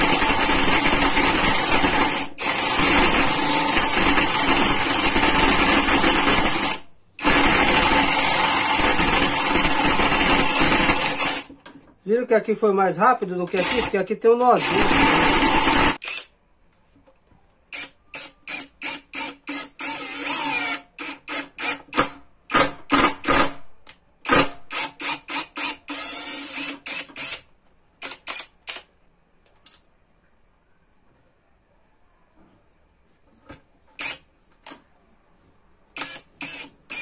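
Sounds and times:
impact driver drilling into wood: 0.0 - 11.5, 13.6 - 14.0, 14.6 - 16.3, 17.8 - 23.6, 24.2 - 28.8, 36.0 - 37.0.

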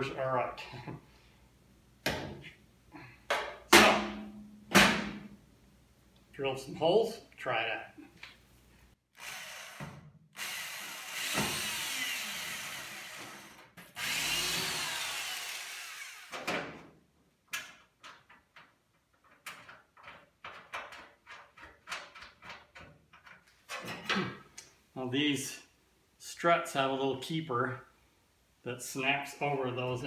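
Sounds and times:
drill drilling into metal: 9.2 - 16.4.

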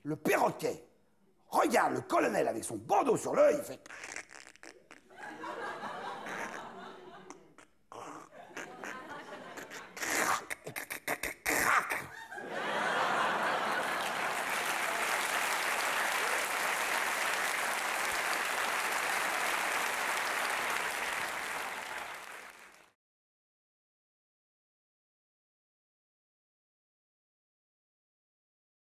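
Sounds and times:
audience applauding: 12.6 - 23.0.

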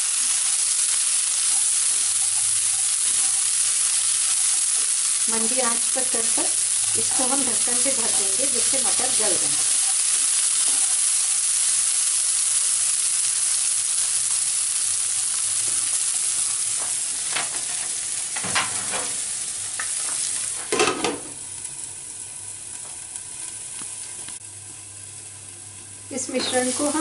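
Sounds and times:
onion sizzling in oil: 0.0 - 27.0
knocks on pan: 20.6 - 21.4.

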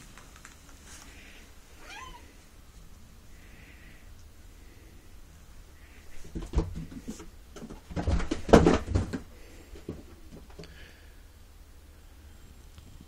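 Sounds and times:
cat thumping and scrabbling: 6.2 - 10.6.

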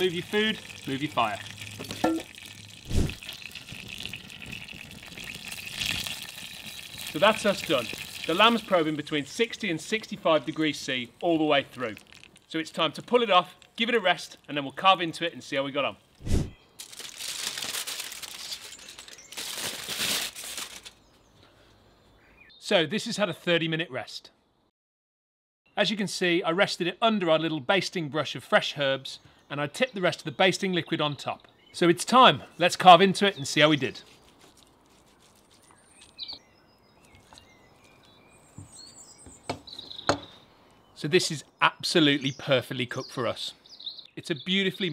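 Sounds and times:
kitchen foil crinkling: 16.8 - 21.0, 33.9 - 36.2
birds chirping: 20.9 - 24.7, 28.9 - 44.9.

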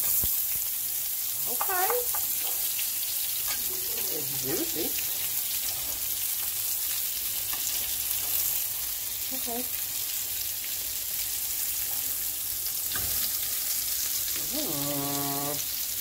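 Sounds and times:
patties sizzling in hot oil: 0.0 - 16.0
spatula turning patties: 1.4 - 9.0.

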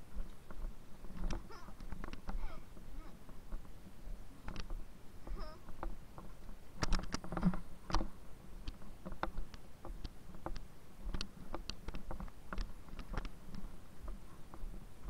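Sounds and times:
faint low hum: 0.0 - 15.0
light clicks and taps: 0.2 - 2.4, 4.4 - 4.8, 5.7 - 14.8.

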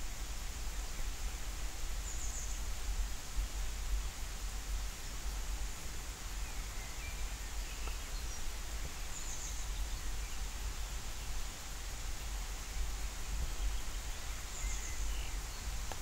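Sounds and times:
light rain hissing: 0.0 - 16.0
faint bird chirps: 6.4 - 15.9.

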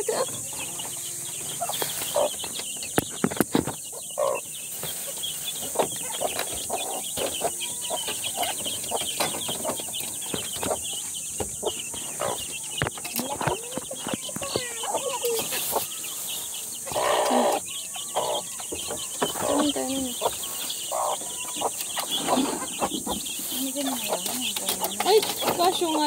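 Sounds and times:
chicks peeping: 0.0 - 26.0
hen clucking: 0.0 - 26.0
knocks and rustles: 0.3 - 4.0.

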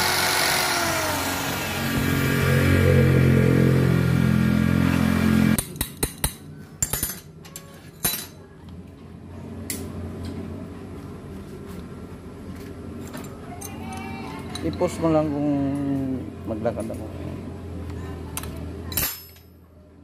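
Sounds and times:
electric drill motor whine: 0.0 - 2.2
small metal parts clinking: 6.2 - 8.4, 13.1 - 15.0, 18.4 - 19.6.

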